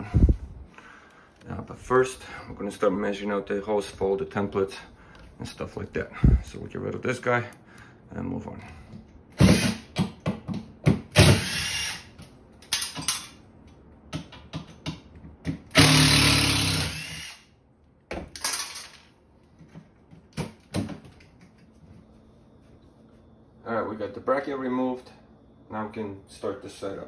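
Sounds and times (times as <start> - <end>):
cordless drill running: 9.4 - 9.9, 11.2 - 12.1, 15.7 - 17.5.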